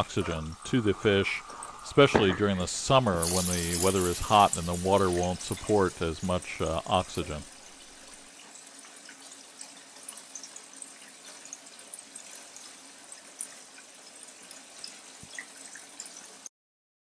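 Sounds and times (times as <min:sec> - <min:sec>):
water streams splashing into tank: 0:00.0 - 0:16.3
small crackling water spatters: 0:03.2 - 0:05.7.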